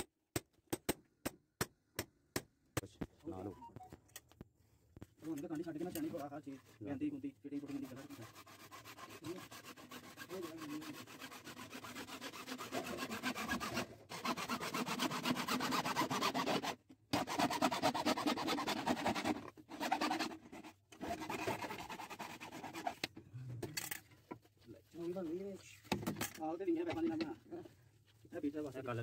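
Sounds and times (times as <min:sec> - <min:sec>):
hacksaw cutting plastic pipe: 0:07.6 - 0:24.0, 0:25.9 - 0:27.4.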